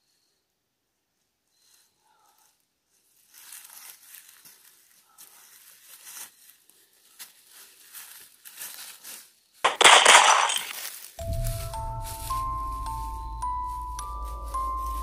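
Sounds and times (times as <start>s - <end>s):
footsteps crunching dry leaves: 3.2s - 15.0s.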